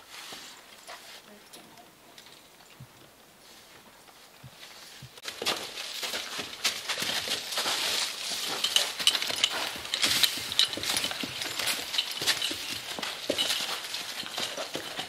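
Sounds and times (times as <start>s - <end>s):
hooves crunching on snow: 2.7s - 15.0s
harness fittings jingling: 5.2s - 15.0s.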